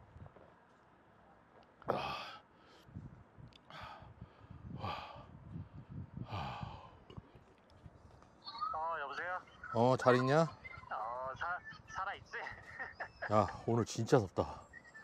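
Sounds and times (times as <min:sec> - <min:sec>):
man sighing heavily: 0:01.9 - 0:02.4.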